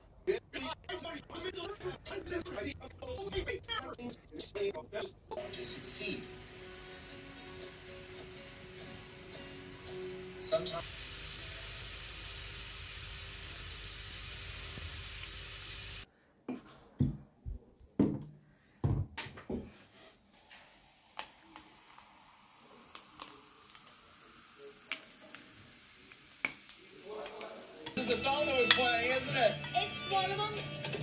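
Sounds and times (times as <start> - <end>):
food sizzling in a pan: 5.4 - 16.1, 20.0 - 29.8.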